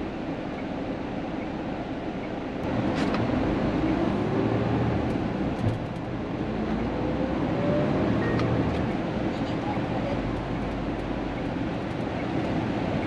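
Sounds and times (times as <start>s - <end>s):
road noise: 0.0s - 13.0s
truck diesel engine: 2.6s - 13.0s.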